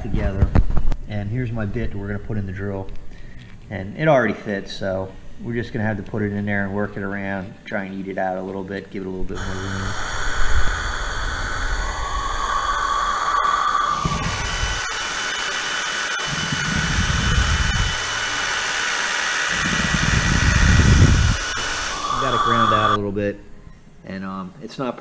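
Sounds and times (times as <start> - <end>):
bit grinding metal: 9.4 - 23.0
drill motor whine: 9.4 - 23.0.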